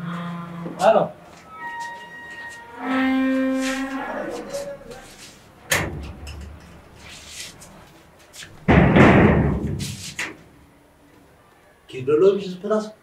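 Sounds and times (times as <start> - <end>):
bang on sheet-metal gate: 5.7 - 6.6, 8.6 - 10.4.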